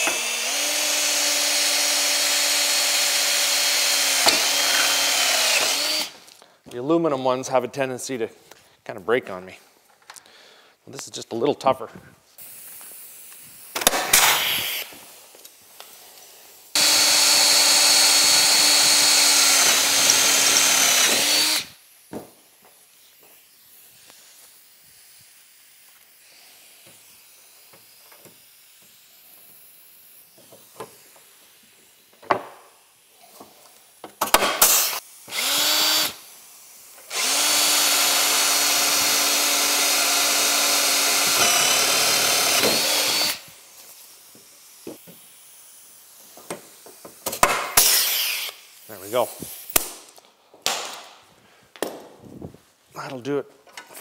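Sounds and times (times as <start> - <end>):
cordless drill boring: 0.0 - 6.2, 13.8 - 14.9, 16.7 - 21.8, 34.3 - 36.4, 37.0 - 43.7, 47.8 - 48.6.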